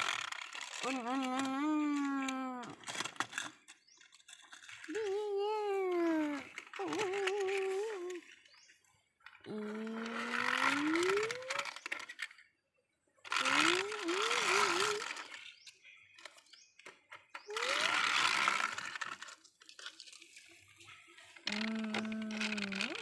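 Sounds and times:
person imitating car engine: 0.8 - 2.8, 4.9 - 8.3, 9.4 - 11.8, 13.3 - 15.3, 17.5 - 19.0, 21.5 - 23.0.

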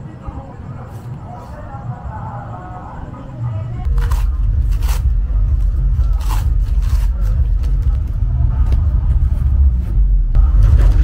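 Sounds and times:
low rumble: 1.8 - 11.0
cardboard tearing and rustling: 3.9 - 5.1, 6.0 - 7.8.

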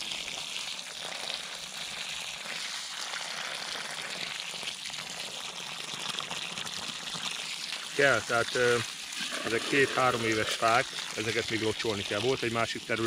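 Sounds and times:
water pouring from hose: 0.0 - 13.0.

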